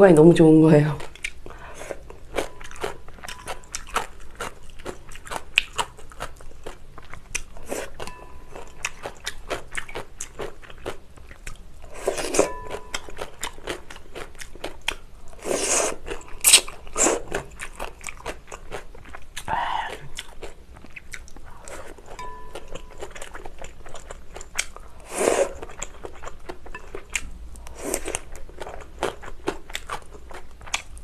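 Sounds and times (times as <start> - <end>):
chewing noodles: 1.0 - 31.0
slurping noodles and broth: 15.4 - 17.4, 25.0 - 25.6
wet mouth clicks: 16.4 - 16.7.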